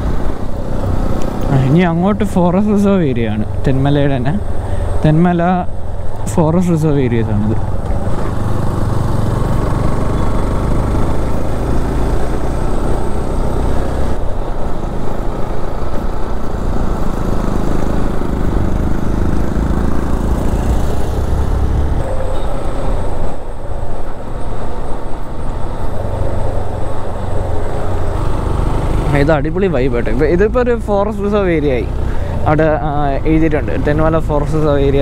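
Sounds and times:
wind and road noise: 0:00.0 - 0:35.0
motorcycle engine running: 0:07.6 - 0:15.4, 0:16.0 - 0:23.2.

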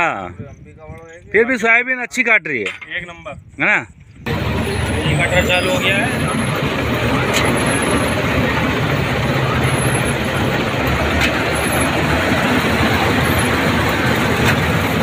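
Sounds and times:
combine harvester droning: 0:04.3 - 0:15.0.

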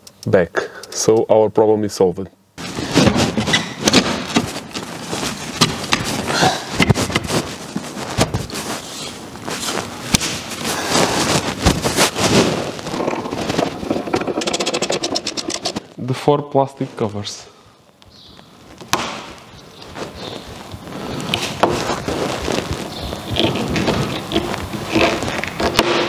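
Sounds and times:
plastic trim and cloth rustling: 0:02.6 - 0:16.0.

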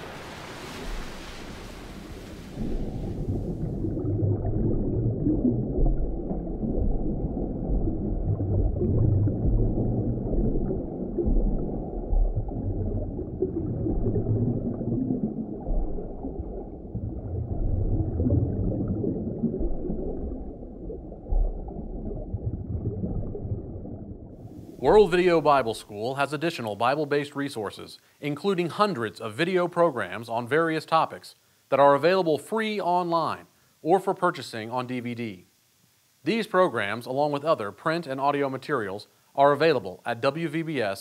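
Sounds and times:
muffled underwater wash: 0:00.0 - 0:26.6.

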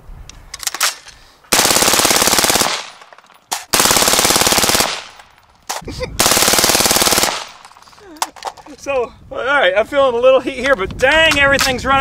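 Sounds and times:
suppressed rifle automatic fire: 0:01.5 - 0:03.1, 0:03.7 - 0:05.2, 0:06.2 - 0:07.7.

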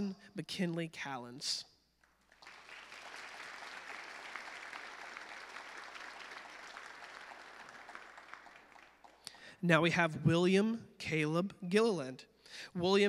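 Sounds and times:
crowd clapping: 0:02.0 - 0:09.4.

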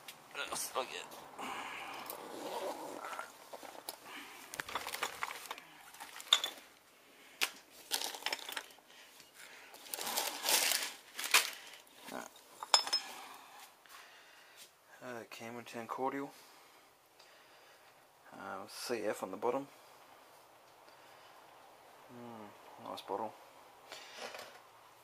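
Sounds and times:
glass bottles clinking: 0:04.6 - 0:06.6, 0:07.9 - 0:08.8, 0:12.6 - 0:13.2
fabric bag rustling: 0:09.8 - 0:11.9.

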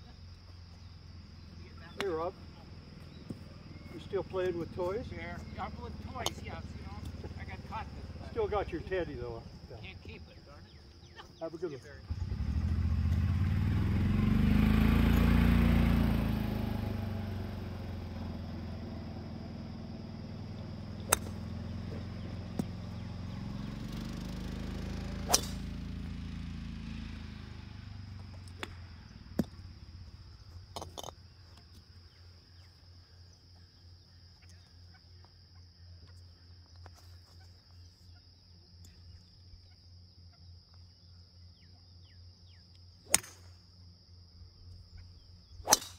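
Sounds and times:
passing engine drone: 0:12.1 - 0:30.2
golf driver striking ball: 0:21.0 - 0:21.7, 0:25.2 - 0:25.8, 0:43.1 - 0:43.5, 0:45.6 - 0:45.9.

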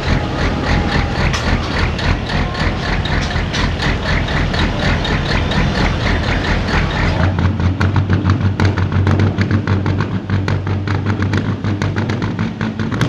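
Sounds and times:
diesel engine idling: 0:00.0 - 0:13.0
engine mechanical clatter: 0:00.0 - 0:13.0.

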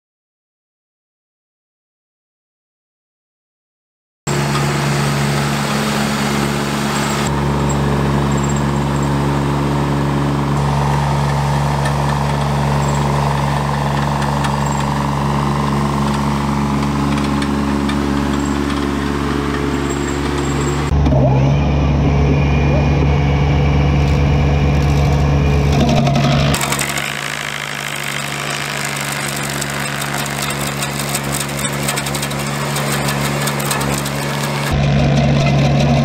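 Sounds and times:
stump grinder wheel spinning: 0:04.3 - 0:21.0, 0:24.0 - 0:36.0
skid steer engine running: 0:04.3 - 0:36.0.

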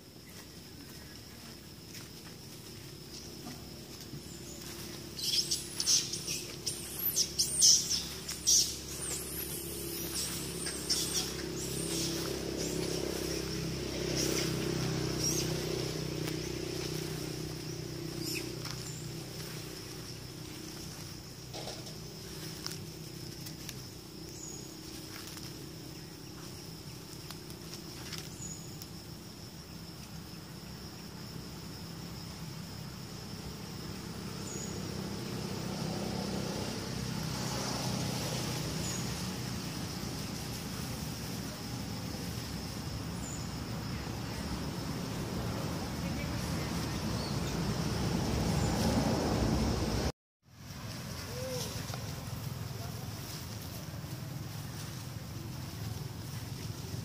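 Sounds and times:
insect drone: 0:00.0 - 0:57.0
high chirp: 0:04.2 - 0:17.0.

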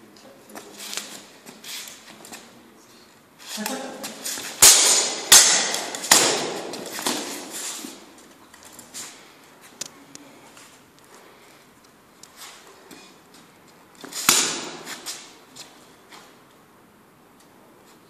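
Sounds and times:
swords striking armour: 0:04.5 - 0:07.5, 0:14.2 - 0:15.0.

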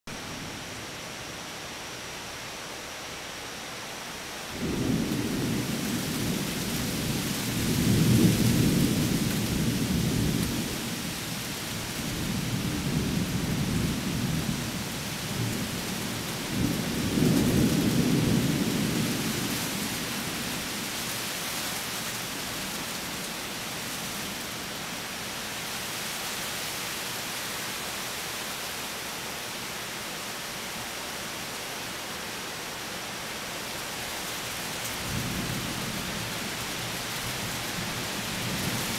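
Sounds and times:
steady hiss: 0:00.1 - 0:38.9
thunder rumbling: 0:04.6 - 0:11.0.

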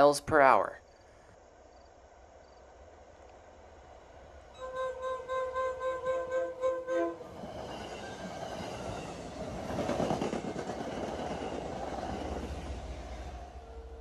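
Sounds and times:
train wheels rumbling over rails: 0:07.1 - 0:14.0.

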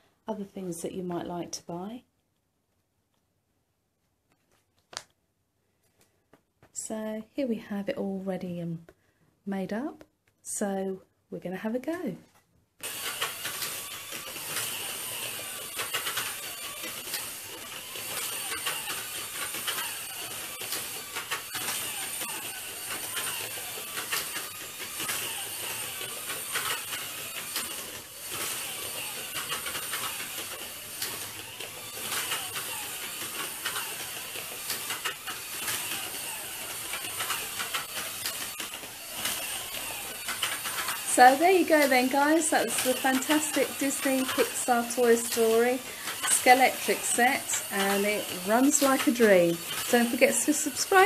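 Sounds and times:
slot car clicks and rattles: 0:12.8 - 0:51.0
slot car motors whining: 0:12.8 - 0:51.0.

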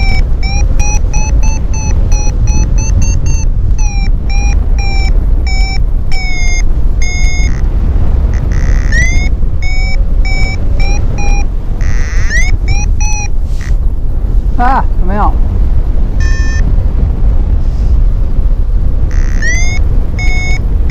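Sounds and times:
long tone and rising chirp: 0:00.0 - 0:13.8, 0:16.2 - 0:16.6, 0:19.1 - 0:20.9
variometer beeping: 0:00.0 - 0:14.1, 0:14.7 - 0:17.2, 0:18.4 - 0:20.9
wind rush on microphone: 0:00.0 - 0:20.9.

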